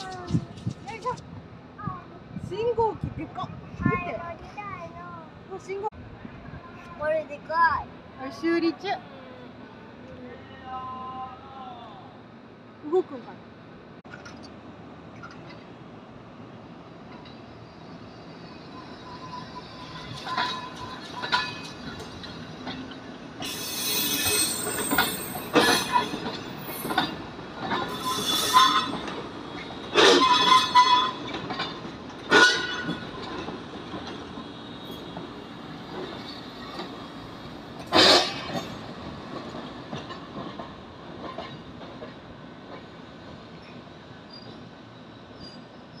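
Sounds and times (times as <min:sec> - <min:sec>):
low train rumble: 0:00.0 - 0:46.0
train wheels squealing: 0:17.3 - 0:33.4, 0:34.1 - 0:38.9, 0:43.5 - 0:46.0.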